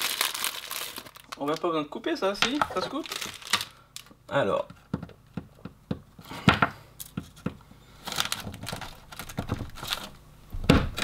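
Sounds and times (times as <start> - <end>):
chocolate shell crackling: 0.0 - 1.7, 2.5 - 4.1.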